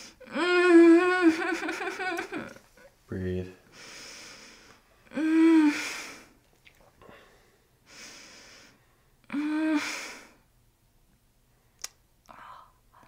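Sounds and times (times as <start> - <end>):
woman moaning in pain: 0.2 - 1.6, 5.1 - 5.8, 9.3 - 9.9
breathy inhale: 3.7 - 4.8, 7.0 - 9.1.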